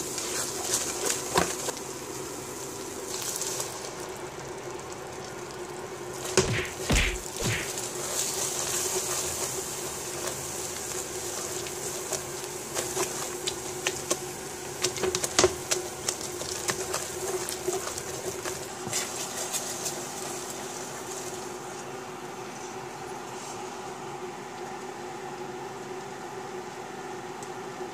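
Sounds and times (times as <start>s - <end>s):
steady hum: 6.2s - 8.0s.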